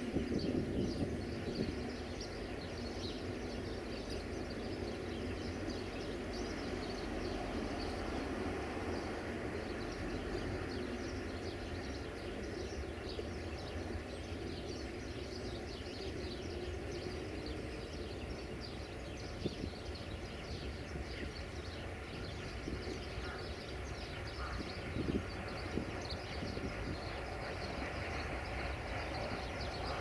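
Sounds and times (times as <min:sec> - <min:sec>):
diesel locomotive engine drone: 0:00.0 - 0:30.0
small birds chirping: 0:08.9 - 0:30.0.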